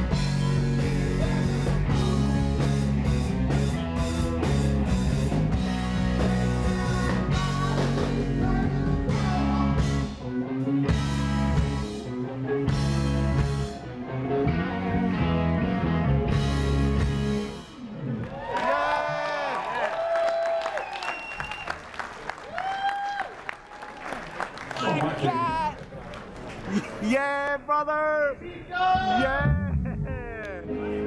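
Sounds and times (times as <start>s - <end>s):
live rock band playing: 0.0s - 18.2s.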